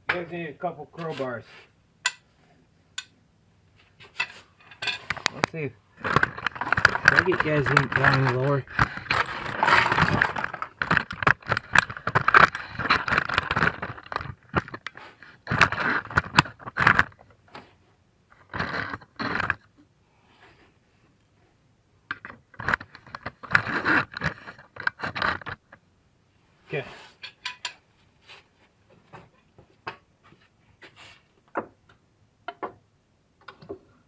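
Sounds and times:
metal tools clinking and scraping: 0:04.0 - 0:14.9, 0:27.2 - 0:27.8.

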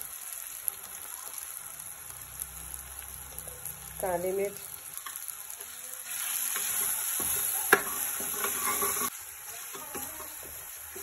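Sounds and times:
spices sizzling in hot oil: 0:00.0 - 0:11.0
steel ladle clinking pan: 0:07.7 - 0:09.1.

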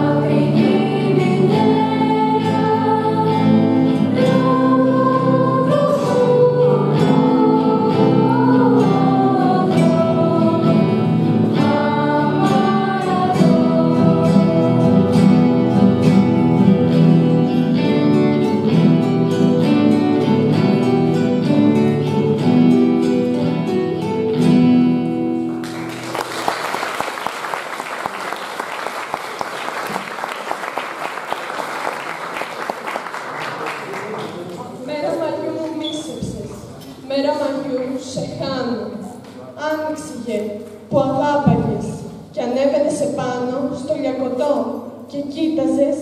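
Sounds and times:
people singing: 0:00.0 - 0:17.6
acoustic guitars playing: 0:00.0 - 0:46.0
audience applauding: 0:25.5 - 0:34.8.

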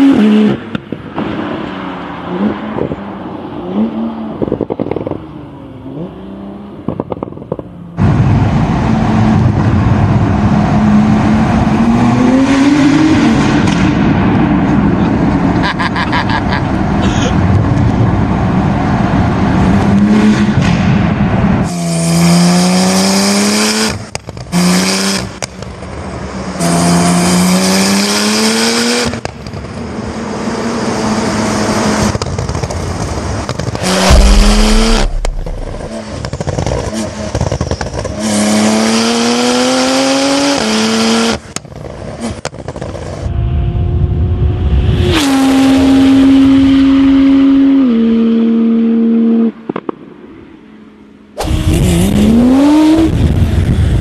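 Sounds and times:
sports car engine accelerating: 0:30.4 - 0:41.4.

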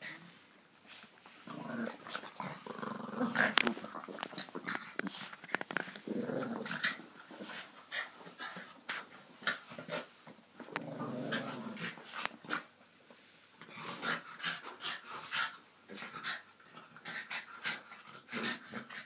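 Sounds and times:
dogs growling: 0:01.4 - 0:07.7, 0:10.6 - 0:12.6.

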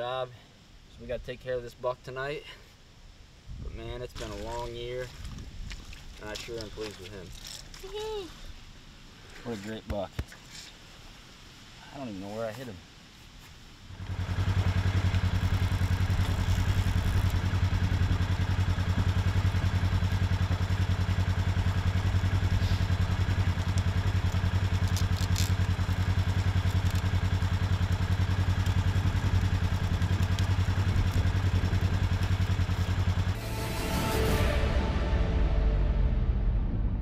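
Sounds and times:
vehicle engine running: 0:14.0 - 0:37.0.

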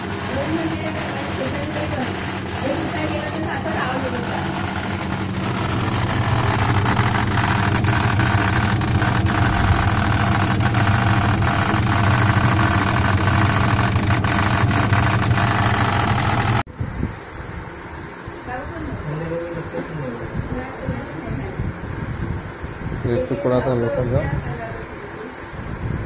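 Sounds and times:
washing machine motor hum: 0:00.0 - 0:16.7.

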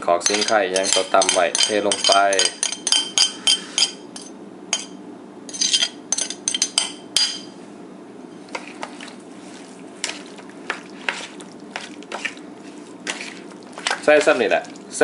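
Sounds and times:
metal spoon clinking on plate: 0:00.2 - 0:07.5.

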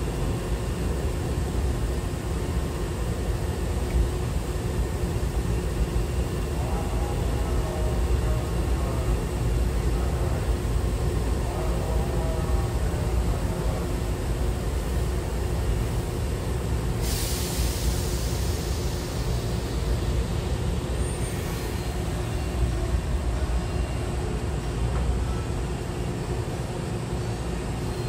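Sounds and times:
train low rumble: 0:00.0 - 0:28.0
compressed air hiss: 0:17.0 - 0:19.7.

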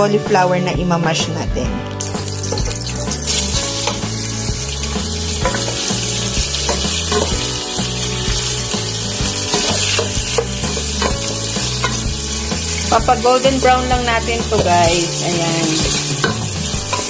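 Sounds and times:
background music with bass line: 0:00.0 - 0:17.0
meat sizzling in hot oil: 0:01.9 - 0:17.0
wooden spoon scraping a wok: 0:02.4 - 0:12.9.

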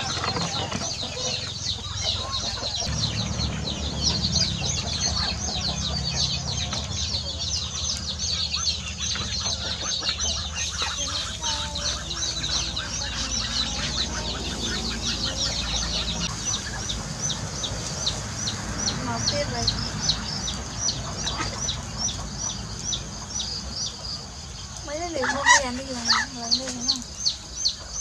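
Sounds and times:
low steady rumble: 0:00.0 - 0:24.8
chickens clucking and peeping: 0:00.0 - 0:28.0.

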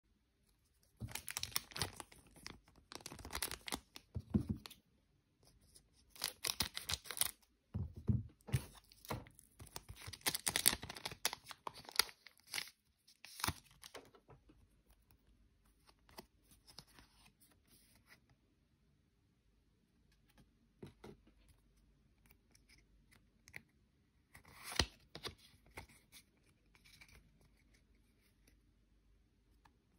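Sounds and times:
cards rustling: 0:00.7 - 0:04.8, 0:05.7 - 0:07.4, 0:08.5 - 0:14.2
foil wrapper crinkling and tearing: 0:00.9 - 0:04.1, 0:06.1 - 0:07.4, 0:09.0 - 0:14.0.

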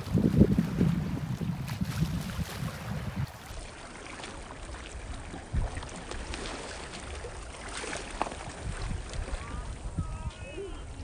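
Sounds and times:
wind buffeting microphone: 0:00.0 - 0:03.5, 0:04.8 - 0:11.0
small waves lapping on stones: 0:01.6 - 0:09.9.

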